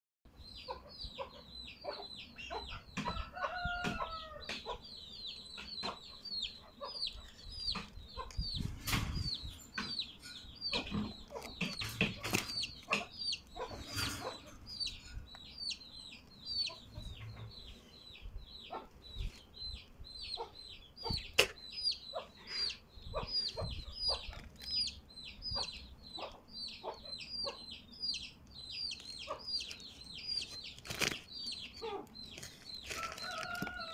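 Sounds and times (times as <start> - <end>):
knocks and rustling: 7.7 - 13.1.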